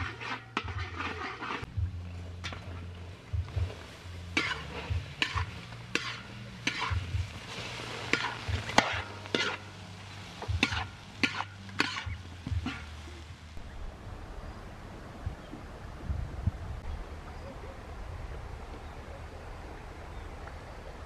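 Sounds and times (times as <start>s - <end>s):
metal ladle scraping wok: 0.0s - 1.7s, 4.3s - 13.0s
fish sizzling in oil: 3.0s - 13.5s.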